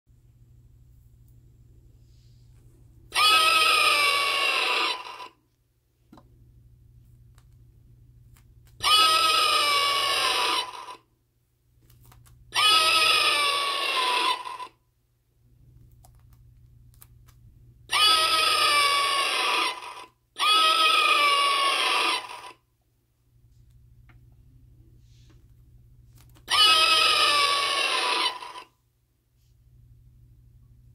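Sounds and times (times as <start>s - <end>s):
tinny recorded scream: 3.1s - 5.4s, 8.8s - 11.1s, 12.6s - 14.8s, 17.9s - 22.6s, 26.5s - 28.8s.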